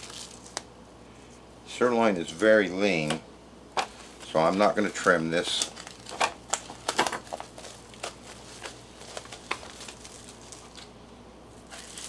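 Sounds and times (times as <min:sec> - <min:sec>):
plastic wrap crinkling: 0:00.0 - 0:00.7, 0:03.8 - 0:10.9, 0:11.6 - 0:12.0.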